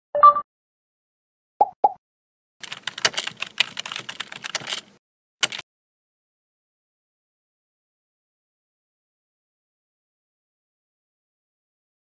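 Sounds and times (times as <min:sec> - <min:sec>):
keyboard key clicks: 0:02.6 - 0:05.6.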